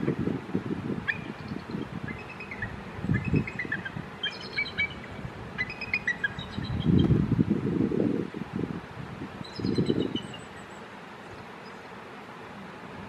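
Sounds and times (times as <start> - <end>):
eagles chittering calls: 1.0 - 7.0.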